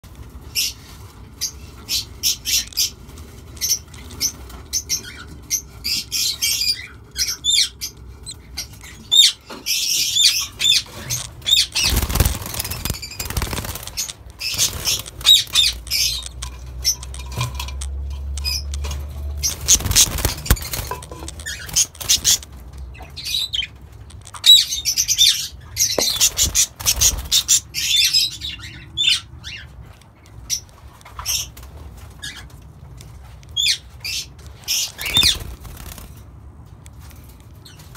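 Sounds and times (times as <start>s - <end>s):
parakeets chirping and squawking: 0.4s - 36.2s
wing flapping: 11.5s - 16.4s, 19.4s - 22.5s.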